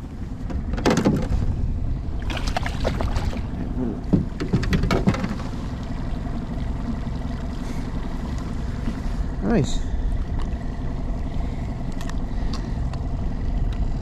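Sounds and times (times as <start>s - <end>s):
steady low rumble: 0.0s - 14.0s
fish splashing in water: 2.2s - 3.8s.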